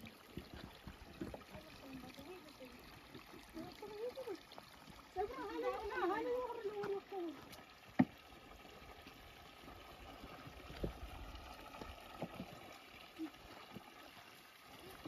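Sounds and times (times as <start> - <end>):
mountain stream trickling: 0.0 - 15.0.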